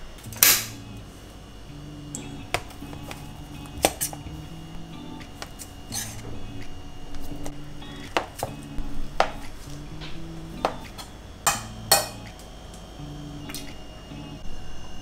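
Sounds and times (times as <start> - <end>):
soft background music: 0.2 - 15.0.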